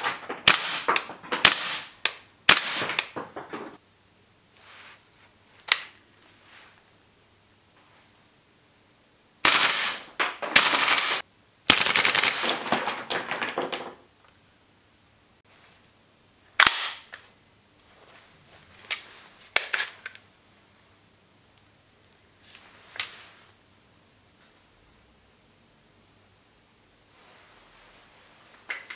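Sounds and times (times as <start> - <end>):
airsoft rifle automatic bursts: 9.4 - 12.6.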